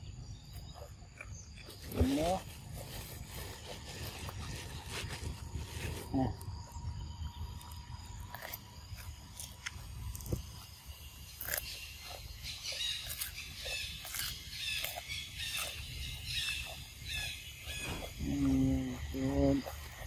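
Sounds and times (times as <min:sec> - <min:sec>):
monkey chewing crunchy cucumber: 0:07.6 - 0:20.0.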